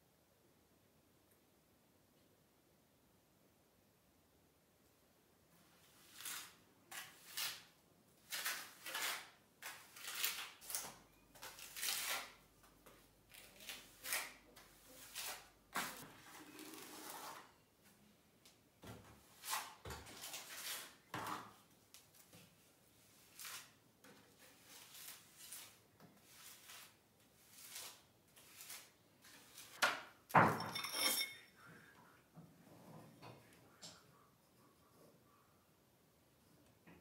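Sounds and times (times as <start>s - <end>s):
trowel scraping wet plaster: 6.1s - 10.8s.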